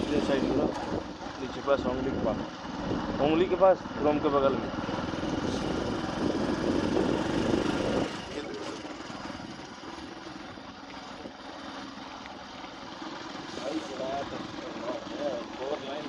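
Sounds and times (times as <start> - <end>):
traffic noise: 0.0 - 12.0
engine running with rapid pulsing: 0.0 - 16.0.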